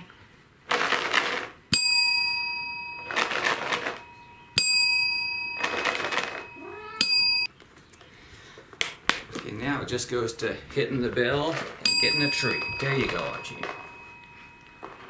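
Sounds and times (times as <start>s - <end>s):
plastic tub of treats rattling: 0.7s - 1.6s, 3.0s - 4.0s, 5.6s - 6.4s, 11.0s - 13.9s
desk service bell ringing: 1.7s - 7.5s, 11.8s - 15.0s.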